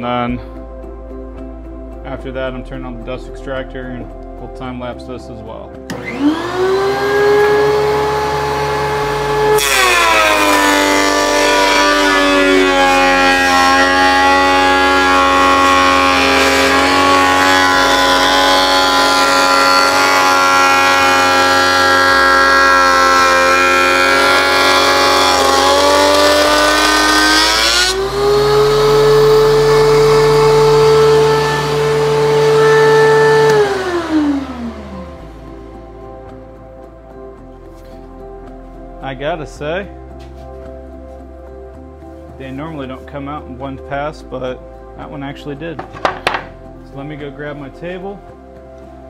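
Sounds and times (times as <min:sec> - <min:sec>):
thickness planer motor whine: 0:05.8 - 0:38.3, 0:45.8 - 0:46.7.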